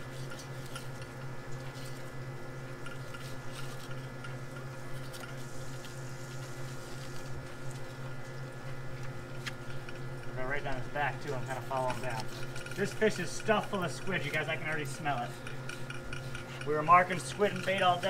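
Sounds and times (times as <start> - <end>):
low machine hum: 0.0 - 18.0.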